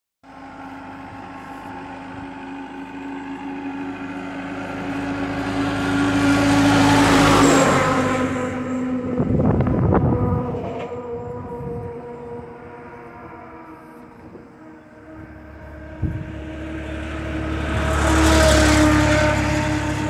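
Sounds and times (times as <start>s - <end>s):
truck passing by: 0.2s - 20.0s
wind buffeting microphone: 7.1s - 20.0s.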